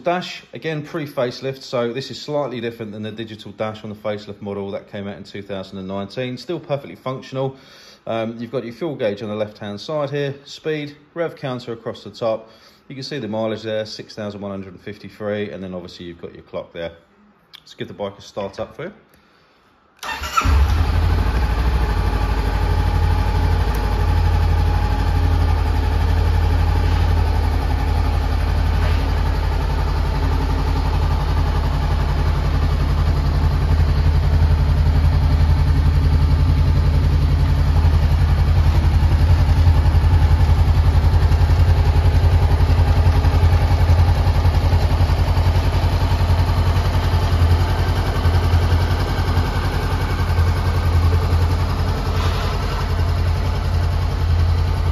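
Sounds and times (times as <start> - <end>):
motorcycle engine idling: 20.0 - 54.9
motorcycle engine starting: 20.0 - 54.9.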